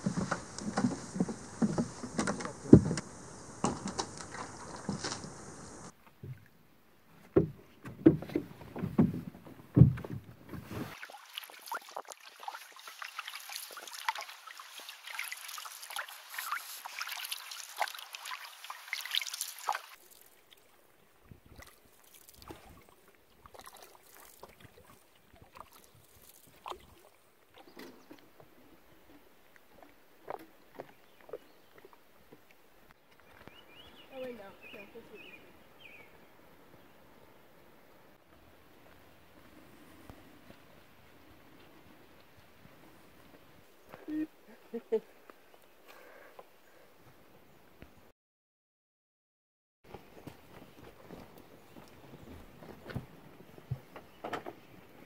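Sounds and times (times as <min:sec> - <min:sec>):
gear knocking on canoe hull: 0:00.0 - 0:05.9, 0:07.4 - 0:10.3
paddle strokes and water splashing: 0:00.0 - 0:06.5, 0:07.3 - 0:35.4.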